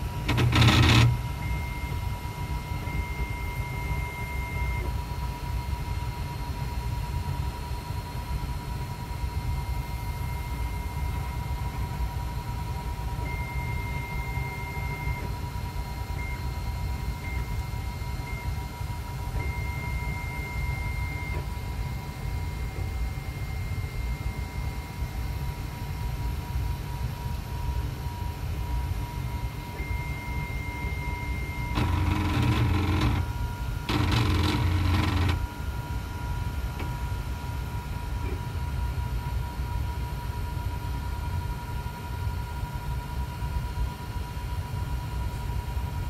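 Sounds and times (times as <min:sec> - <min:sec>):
stepper motor whine: 0:00.0 - 0:06.3, 0:27.6 - 0:37.0
printer low hum: 0:00.0 - 0:40.6.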